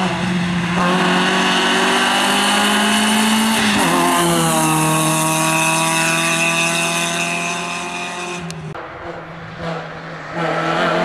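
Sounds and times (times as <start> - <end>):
rally car engine accelerating: 0.0 - 11.0.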